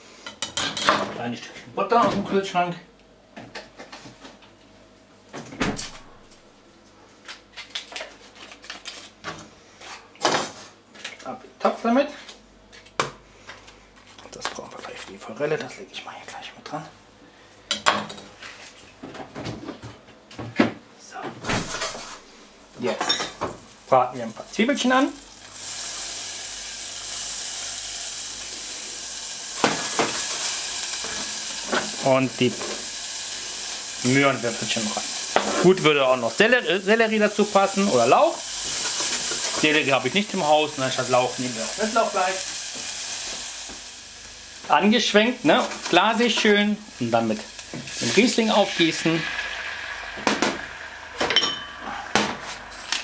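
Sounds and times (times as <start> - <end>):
refrigerator door opening and shutting: 5.4 - 6.2, 21.4 - 22.1
onions sizzling in butter: 21.8 - 53.0.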